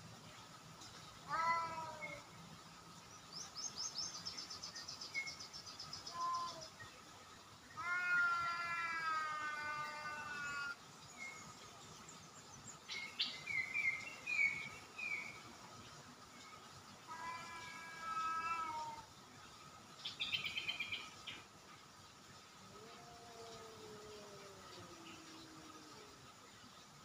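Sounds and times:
small birds chirping: 0.0s - 27.0s
cat meowing: 1.3s - 2.2s, 6.1s - 6.6s, 7.8s - 10.8s, 17.1s - 19.1s.

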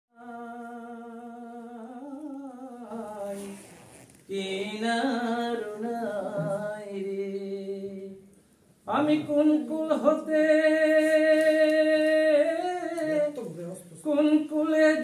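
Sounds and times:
person singing unaccompanied: 4.3s - 8.3s.

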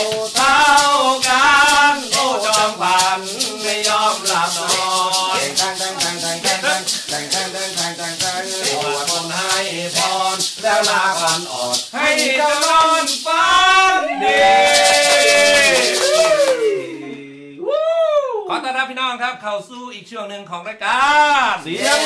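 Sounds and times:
maraca shaken in rhythm: 0.0s - 17.2s, 21.6s - 22.0s
person singing: 0.0s - 18.4s, 21.7s - 22.0s.

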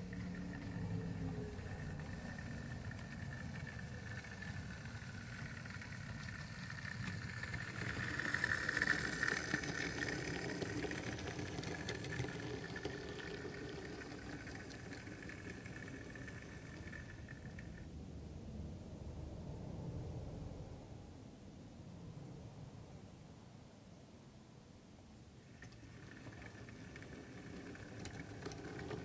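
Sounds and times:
model locomotive running on track: 0.0s - 17.9s, 25.5s - 29.0s.

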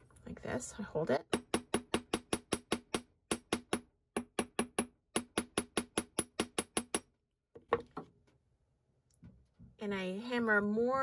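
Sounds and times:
small hammer striking metal wire: 1.3s - 7.1s.

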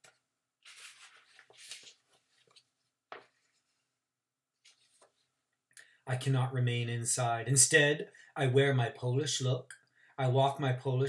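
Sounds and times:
book pages rustling: 0.6s - 3.8s, 4.6s - 5.3s
faint paper scuffs: 0.6s - 3.8s.

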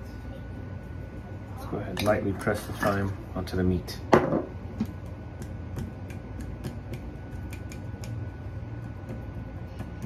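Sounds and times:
low steady hum: 0.0s - 10.0s
kitchen tongs clicking and tapping: 4.8s - 8.2s.

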